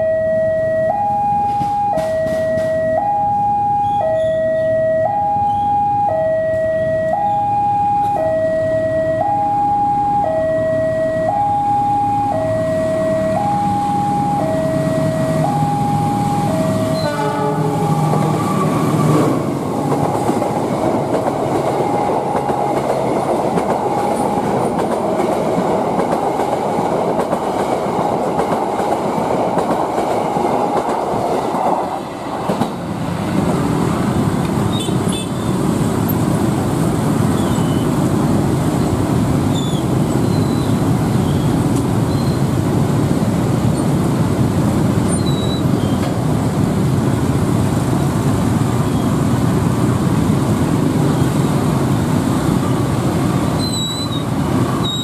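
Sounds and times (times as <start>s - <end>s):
two-tone railway warning chime: 0.0s - 18.7s, 21.6s - 22.9s
passenger train passing: 0.0s - 55.0s.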